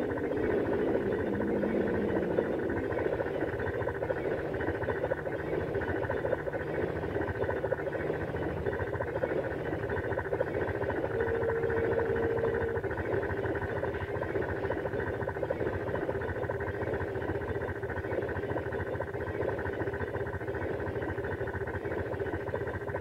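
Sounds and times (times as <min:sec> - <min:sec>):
held tone: 0:00.0 - 0:04.6, 0:07.8 - 0:14.0.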